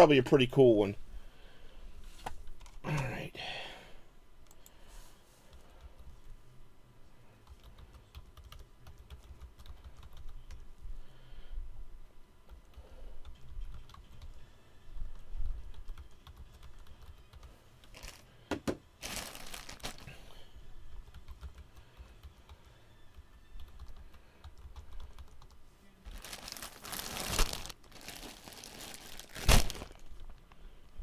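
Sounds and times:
keyboard typing: 7.4s - 10.6s, 12.5s - 14.4s, 15.1s - 17.5s, 21.0s - 25.6s
plastic packaging crinkling: 17.9s - 18.2s, 19.0s - 20.2s, 26.1s - 30.4s.

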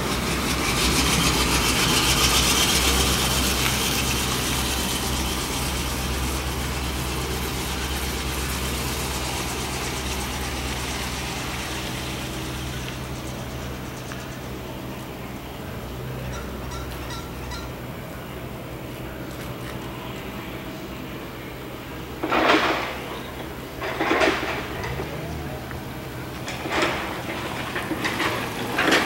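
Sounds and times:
hiss: 0.0s - 14.6s
low machine hum: 0.0s - 29.0s.

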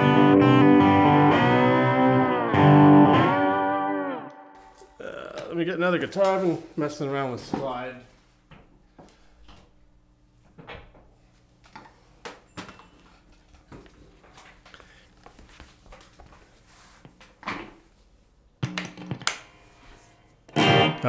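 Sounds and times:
faint electrical hum: 4.5s - 21.0s.

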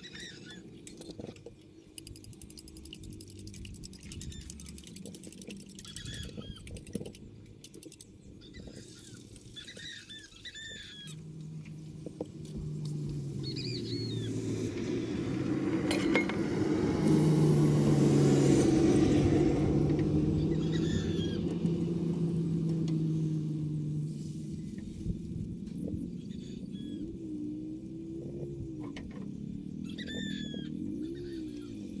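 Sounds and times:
birds chirping: 0.0s - 16.3s, 18.9s - 32.0s
vehicle engine passing: 10.7s - 32.0s.

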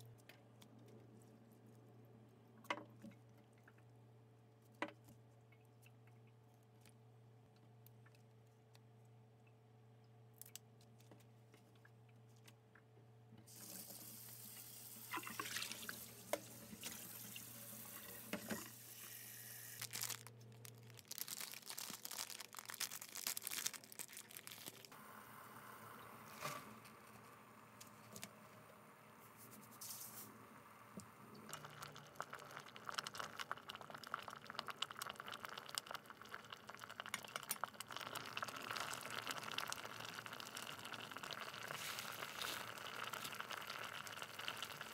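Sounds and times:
tap water running into metal sink: 13.7s - 18.7s
water bubbling in a pot: 15.1s - 18.7s, 31.1s - 44.9s.

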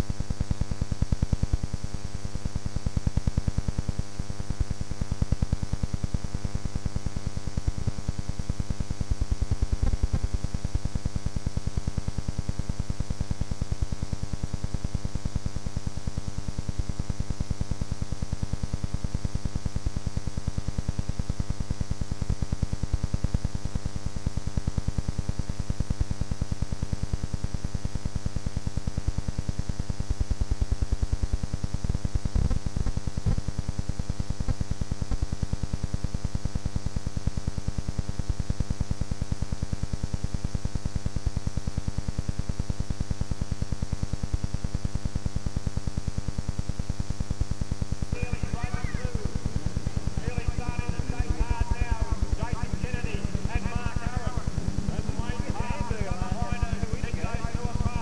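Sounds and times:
electrical buzz: 46.8s - 58.0s.

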